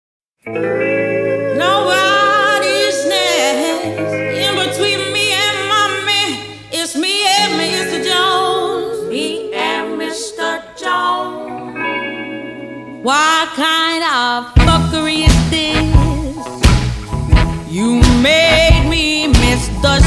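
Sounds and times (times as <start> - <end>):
person singing long wavering notes: 0.6 - 5.9.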